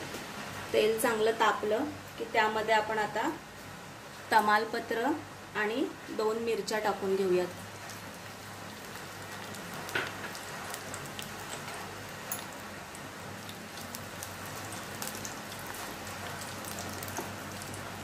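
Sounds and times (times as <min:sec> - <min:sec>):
chillies sizzling in hot oil: 0:04.3 - 0:18.0.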